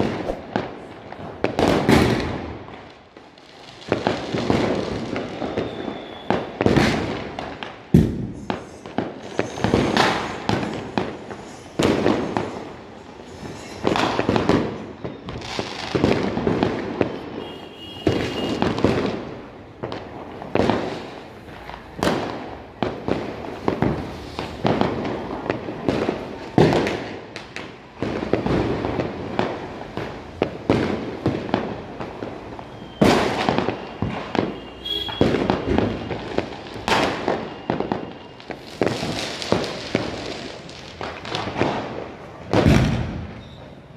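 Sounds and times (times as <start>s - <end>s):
fireworks bangs echoing: 0.0s - 43.9s
high firework whistle: 5.2s - 6.6s, 14.8s - 15.9s, 17.0s - 18.9s, 32.3s - 39.6s, 43.3s - 43.9s.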